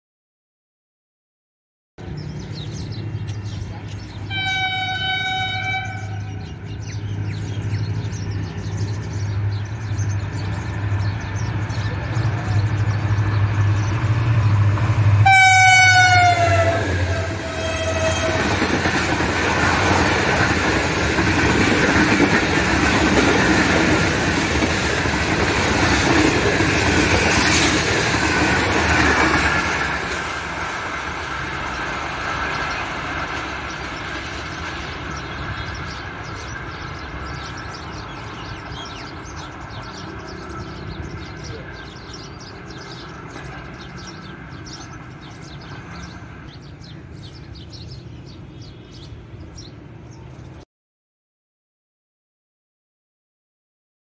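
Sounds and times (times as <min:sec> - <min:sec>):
train coaches rumbling past: 0:02.0 - 0:50.6
locomotive horn blasts: 0:04.3 - 0:06.4, 0:15.2 - 0:18.6.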